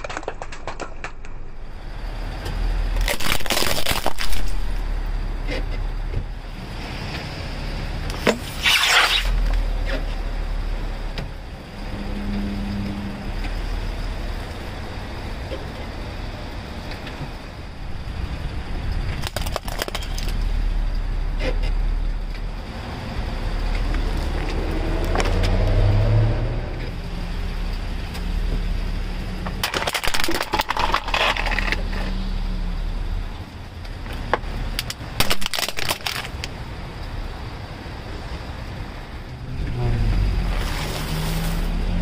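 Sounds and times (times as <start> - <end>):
plastic cracking under tyre: 0.0 - 1.4, 2.9 - 4.8, 8.1 - 10.0, 19.1 - 20.5, 29.4 - 32.1, 34.3 - 36.6
car rumbling: 0.0 - 42.0.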